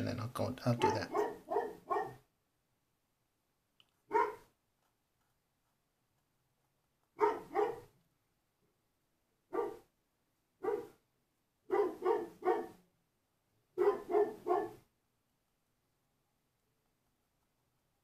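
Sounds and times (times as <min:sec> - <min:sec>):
dog barking: 0:00.8 - 0:02.3, 0:04.1 - 0:04.6, 0:07.2 - 0:08.0, 0:09.5 - 0:09.9, 0:10.6 - 0:11.0, 0:11.7 - 0:12.8, 0:13.8 - 0:14.9.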